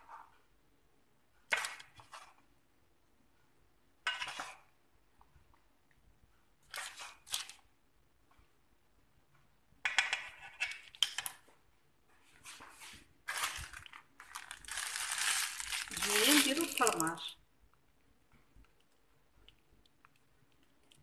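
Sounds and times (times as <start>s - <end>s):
baking paper crinkling: 12.4s - 17.3s.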